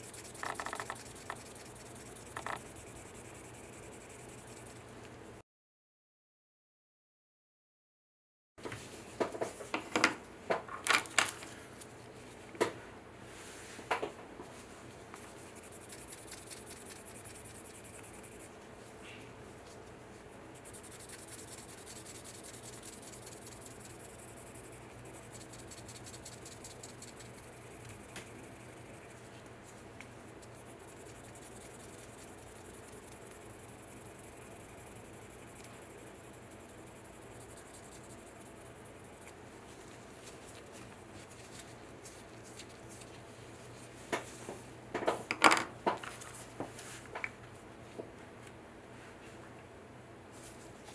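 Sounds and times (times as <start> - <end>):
sanding block scratching: 0.0 - 4.8, 20.6 - 27.8.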